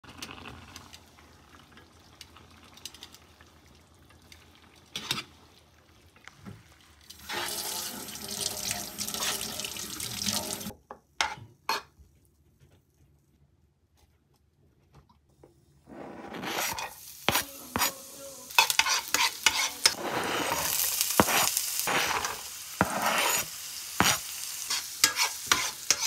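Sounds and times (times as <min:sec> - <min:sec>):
tap water running: 0:06.2 - 0:10.7.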